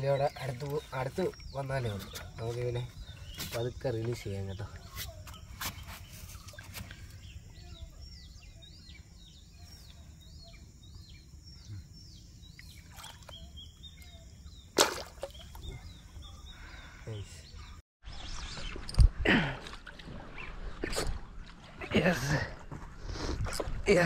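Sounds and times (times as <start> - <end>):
bird chirping: 0.0 - 19.1
fish splashing in water: 14.8 - 15.7.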